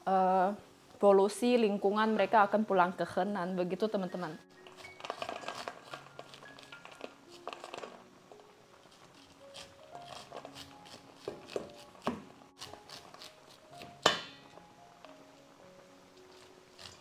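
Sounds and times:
soft background music: 0.0 - 17.0
kernels clicking into metal bowl: 4.6 - 8.0
knife cutting corn kernels: 4.6 - 8.0, 8.8 - 14.4, 16.2 - 17.0.

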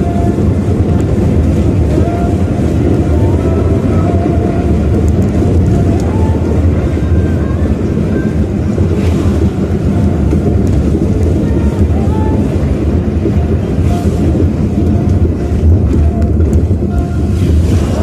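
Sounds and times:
car cabin road and engine rumble: 0.0 - 18.0.

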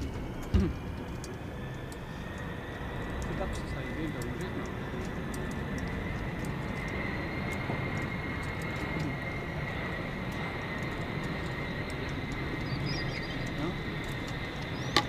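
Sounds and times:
faint high whine: 0.0 - 15.0
outdoor rumble and hiss: 0.0 - 15.0.

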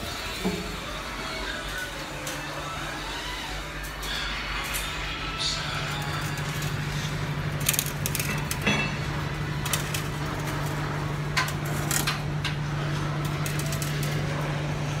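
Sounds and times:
low machine hum: 0.0 - 15.0
metallic clanks on steel: 8.1 - 9.2.

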